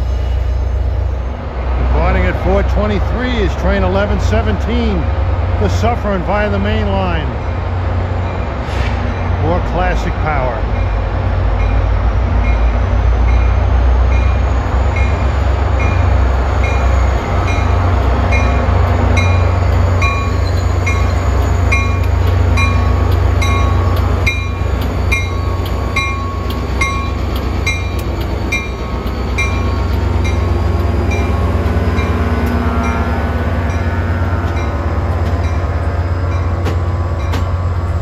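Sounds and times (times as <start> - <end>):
diesel locomotive engine rumbling: 0.0 - 38.0
locomotive bell ringing: 9.5 - 37.9.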